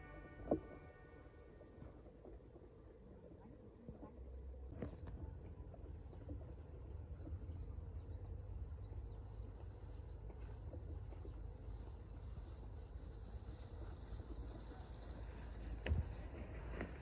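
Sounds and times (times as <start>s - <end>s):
soft rustles: 10.4s - 17.0s.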